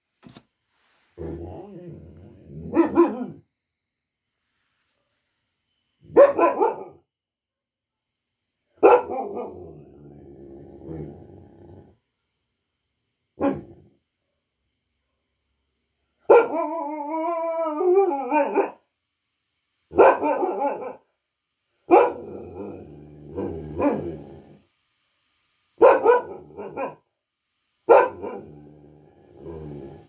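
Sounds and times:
dog barking: 2.6s - 3.4s, 6.0s - 7.0s, 8.8s - 9.7s, 13.4s - 13.8s, 16.2s - 16.7s, 18.0s - 18.8s, 19.9s - 21.1s, 21.9s - 22.6s, 23.8s - 24.1s, 25.8s - 27.0s, 27.9s - 28.5s.

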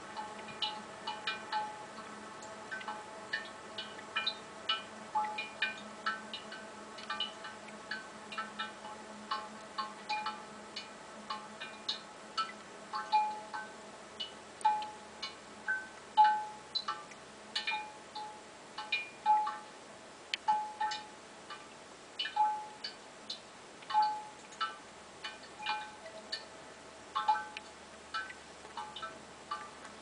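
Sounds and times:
water drops ringing bell-like pings: 22.2s - 22.9s, 25.6s - 26.3s.

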